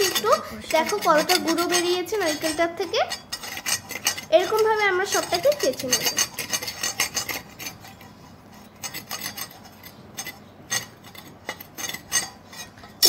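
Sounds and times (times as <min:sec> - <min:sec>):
blade scraping coconut shell: 0:00.0 - 0:13.0.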